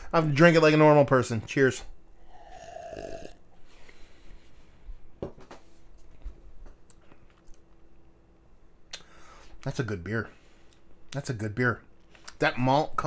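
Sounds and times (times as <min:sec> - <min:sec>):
faint swallowing: 0:02.2 - 0:03.4.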